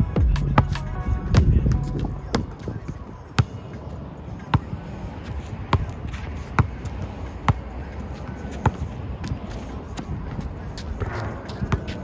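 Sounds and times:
basketball bouncing on asphalt: 0.0 - 12.0.

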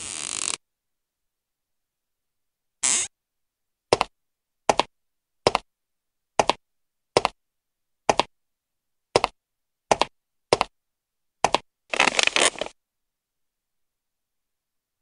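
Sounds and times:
footsteps double tap: 6.4 - 6.6, 7.2 - 7.4, 9.2 - 10.7.

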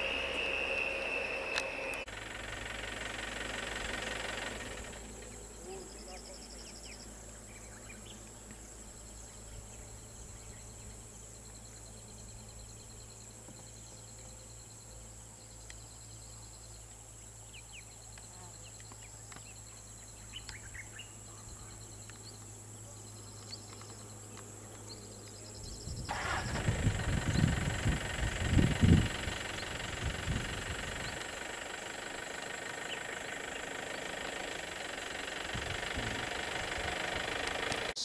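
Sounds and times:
bird chirps: 0.0 - 2.1, 5.2 - 26.1
insects trilling: 0.0 - 38.0
steady low hum: 0.0 - 38.0
vehicle engine rumbling: 0.0 - 38.0.

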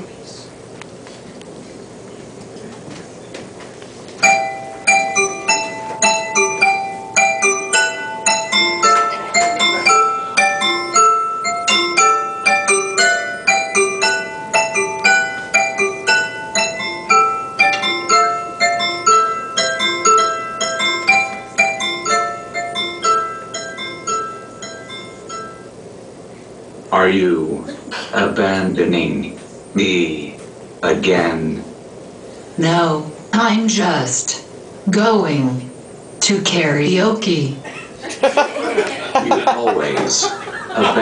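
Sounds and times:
bright keyboard-like melody: 4.2 - 25.7.

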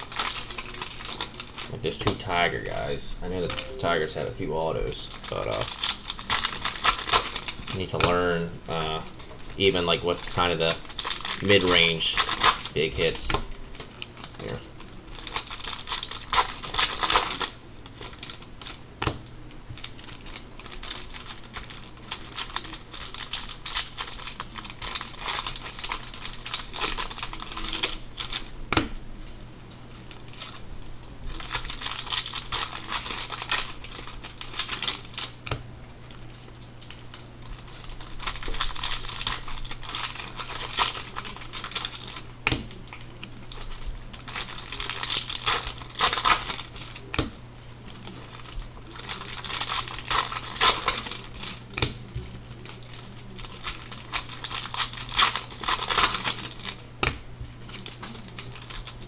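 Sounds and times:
low steady hum: 0.0 - 59.0
trading cards shuffling: 0.2 - 10.7.

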